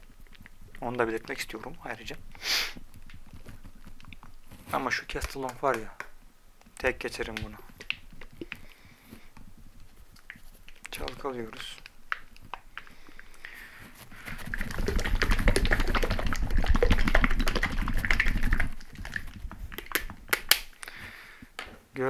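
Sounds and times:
plastic bottles rattling when shaken: 0:06.8 - 0:21.0.

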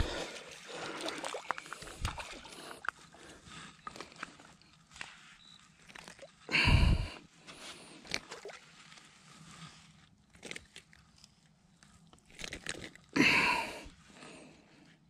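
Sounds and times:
fish thrashing: 0:00.0 - 0:04.2
crunching and rustling on bank: 0:07.4 - 0:13.2.

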